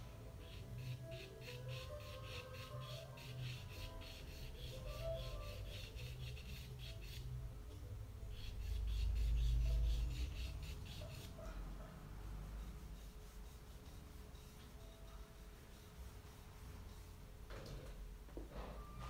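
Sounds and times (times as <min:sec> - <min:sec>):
pencil scratching on paper: 0:00.4 - 0:07.3, 0:08.3 - 0:11.5.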